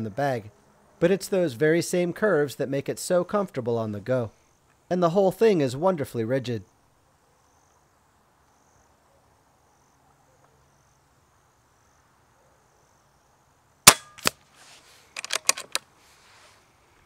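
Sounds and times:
air rifle shot crack: 0:13.9 - 0:14.4.

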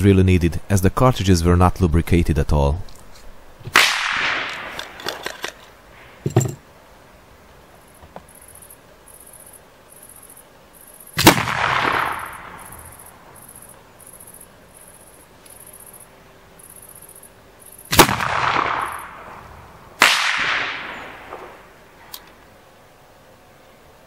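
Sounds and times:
pistol shot echoing: 0:03.7 - 0:04.7, 0:11.2 - 0:13.0, 0:17.9 - 0:19.3, 0:20.0 - 0:21.6
ramrod rattling in barrel: 0:04.5 - 0:05.7, 0:06.3 - 0:06.6.

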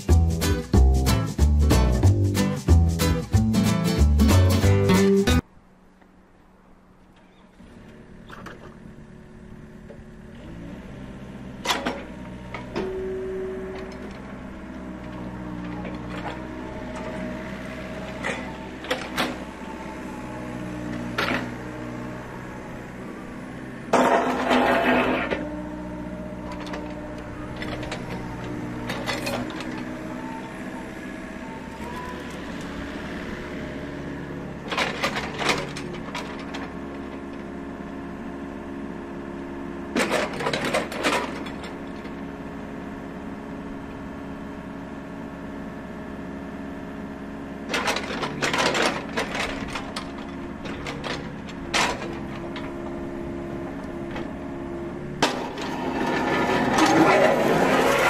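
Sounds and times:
excavator diesel engine running: 0:00.0 - 0:05.5, 0:07.1 - 0:58.0
mechanical clatter: 0:47.7 - 0:53.0.

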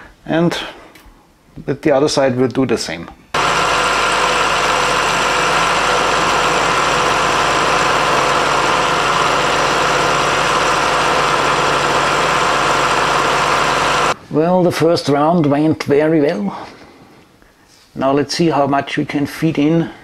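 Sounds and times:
milling machine cutting steel: 0:03.4 - 0:14.2.

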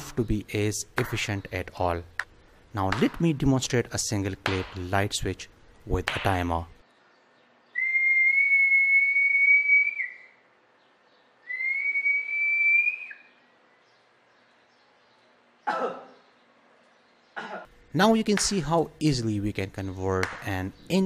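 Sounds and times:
person whistling: 0:07.8 - 0:10.4, 0:11.5 - 0:13.2.

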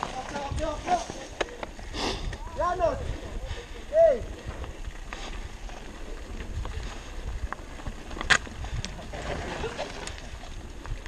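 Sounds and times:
bike rattles and clicks: 0:00.0 - 0:11.0
wind on microphone: 0:00.2 - 0:11.0
bike tyres rumbling over rock: 0:04.2 - 0:11.0.

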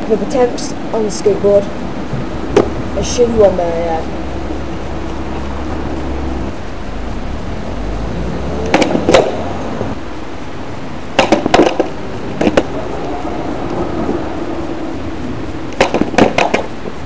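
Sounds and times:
steady background noise: 0:00.0 - 0:17.0
skateboard clacking on asphalt: 0:11.2 - 0:12.7, 0:15.8 - 0:16.8.

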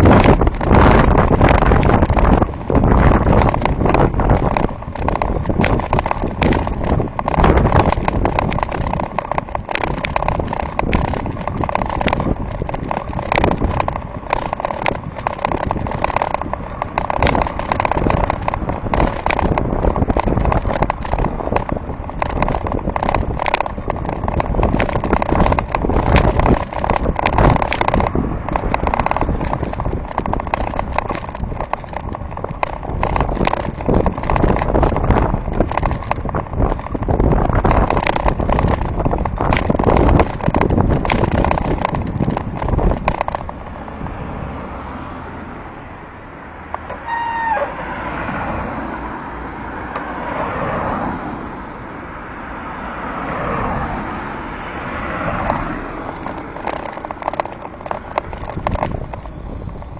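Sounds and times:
bicycle clicks and rattles: 0:00.0 - 0:45.2, 0:45.8 - 0:59.9
road noise: 0:00.0 - 0:59.9
wind rumble on microphone: 0:00.0 - 0:59.9.

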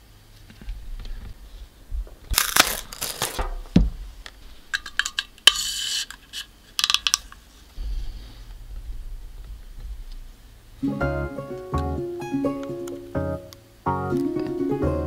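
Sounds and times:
small hard objects clicking: 0:04.7 - 0:07.4
acoustic guitar music: 0:10.8 - 0:15.0.

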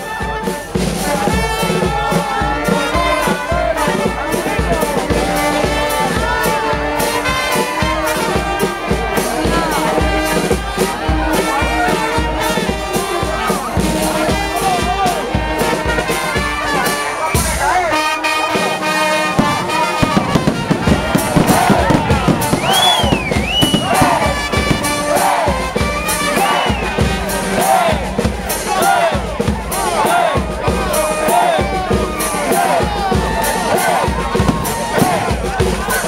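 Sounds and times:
brass band playing: 0:00.0 - 0:36.0
steady drum beat: 0:00.0 - 0:36.0.

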